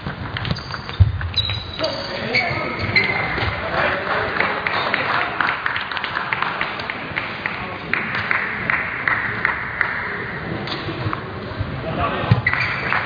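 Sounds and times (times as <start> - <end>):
background chatter: 1.8 - 5.6, 10.0 - 12.5
spectators clapping: 3.6 - 10.3, 12.5 - 13.0.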